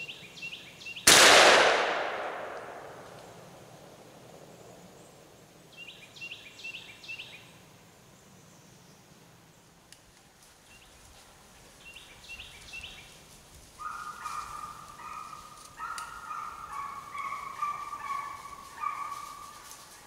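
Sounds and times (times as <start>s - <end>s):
hounds baying: 13.8s - 20.0s.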